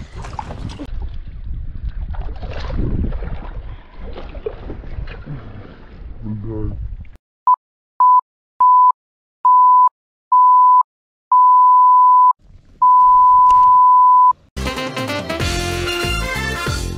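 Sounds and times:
pure bleep tone: 0:07.5 - 0:14.4
music: 0:14.6 - 0:16.9.

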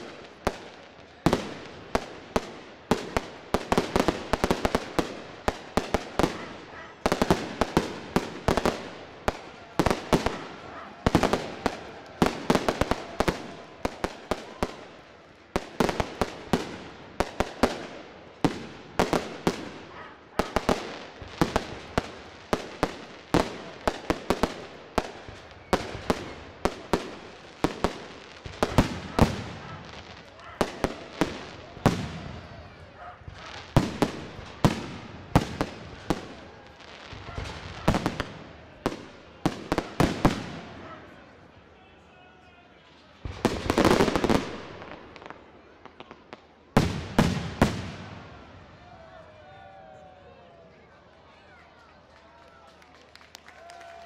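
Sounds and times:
fireworks bursting with sharp bangs: 0:00.0 - 0:41.2, 0:43.1 - 0:48.7.

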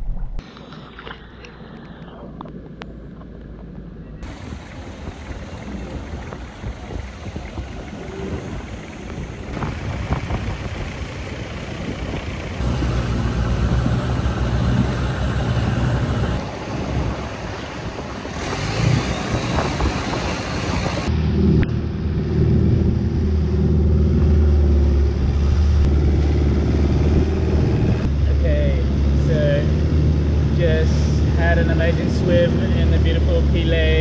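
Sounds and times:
boat engine droning: 0:04.0 - 0:29.9
water noise: 0:04.2 - 0:10.1, 0:12.6 - 0:21.7
wind noise: 0:04.2 - 0:28.3.

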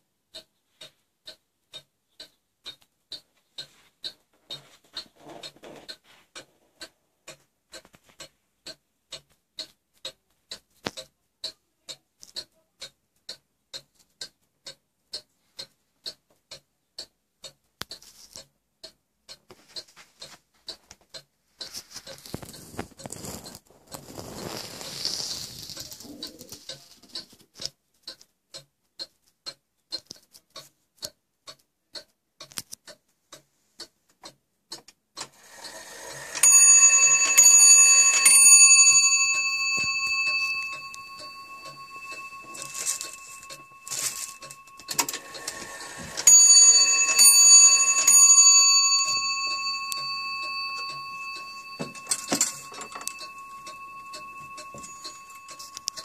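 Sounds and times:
clock ticking: 0:00.0 - 0:56.0
clock striking train whirring: 0:35.4 - 0:56.0
hammer striking bell: 0:36.3 - 0:56.0.

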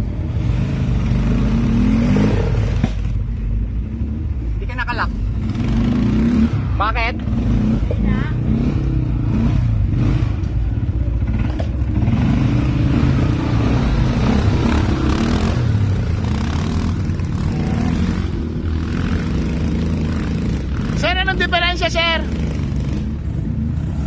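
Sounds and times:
quad bike engine revving: 0:00.0 - 0:24.0.

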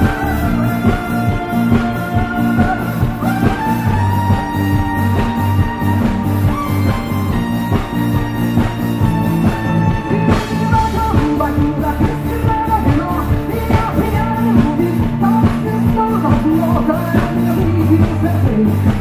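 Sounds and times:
woman singing lead vocal: 0:00.0 - 0:06.0, 0:10.2 - 0:19.0
rock band playing live: 0:00.0 - 0:19.0.

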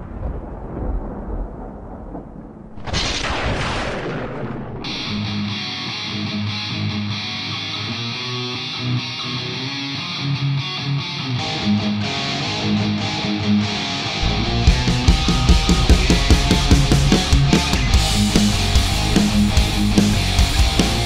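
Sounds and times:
rock guitar held notes: 0:04.9 - 0:21.0
drums and rock band: 0:14.2 - 0:21.0.

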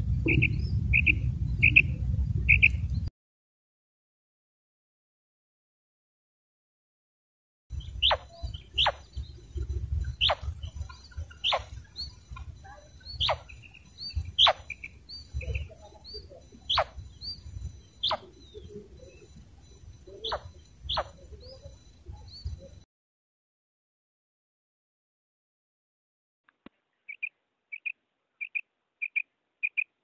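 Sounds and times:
wind rumble on microphone: 0:00.0 - 0:03.1, 0:07.7 - 0:22.8
quail calling: 0:00.3 - 0:02.8, 0:07.7 - 0:22.7, 0:27.1 - 0:30.0
faint short chirps: 0:07.7 - 0:22.9.

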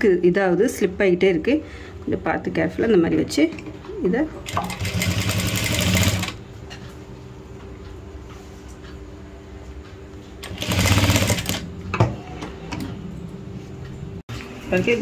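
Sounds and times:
sewing machine stitching: 0:04.4 - 0:06.4, 0:10.4 - 0:11.6.

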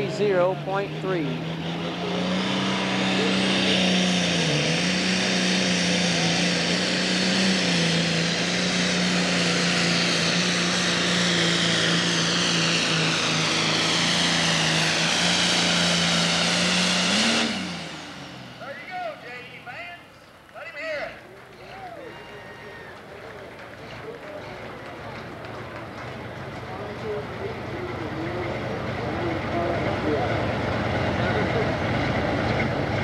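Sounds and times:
diesel engine running under load: 0:00.0 - 0:33.0
high turbo whine: 0:00.0 - 0:33.0.

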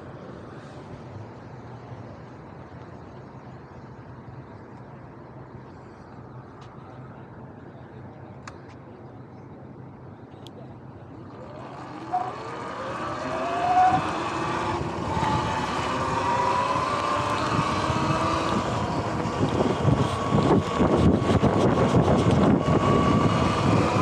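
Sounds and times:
electric motorbike motor whine: 0:11.2 - 0:24.0
wind noise on microphone: 0:11.3 - 0:24.0.

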